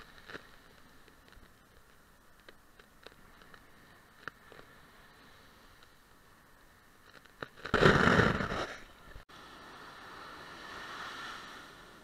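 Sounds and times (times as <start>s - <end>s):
surf washing: 9.3s - 12.0s
wave crashing on beach: 9.3s - 12.0s.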